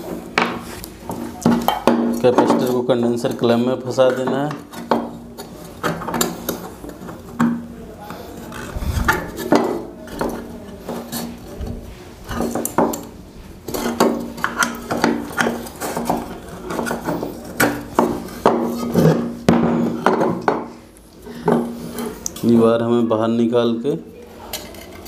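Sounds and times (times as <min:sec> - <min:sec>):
steady low hum: 0:07.7 - 0:10.8.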